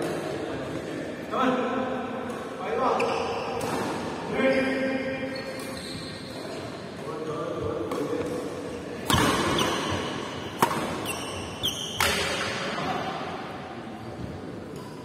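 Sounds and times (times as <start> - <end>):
shoe squeaks on court floor: 2.9 - 3.6, 4.4 - 6.8, 11.0 - 12.2
racket hitting shuttlecock: 7.9 - 12.6.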